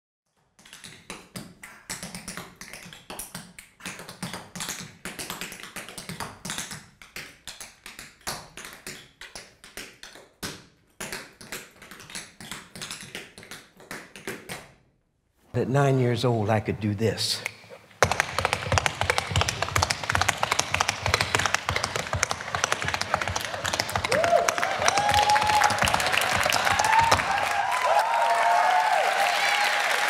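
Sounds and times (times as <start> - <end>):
tap shoes on wooden floor: 18.0 - 27.5.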